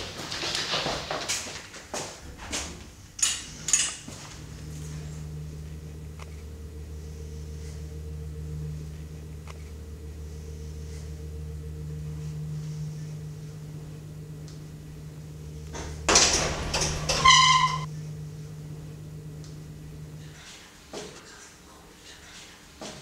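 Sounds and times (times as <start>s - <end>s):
steady low hum: 2.2s - 21.2s
lift metal doors clattering open: 15.7s - 17.9s.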